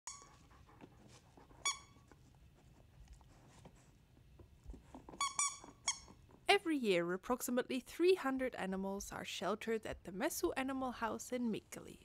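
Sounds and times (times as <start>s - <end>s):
squeaky toy squeak: 0.1s - 0.4s, 1.6s - 2.0s, 5.1s - 6.2s.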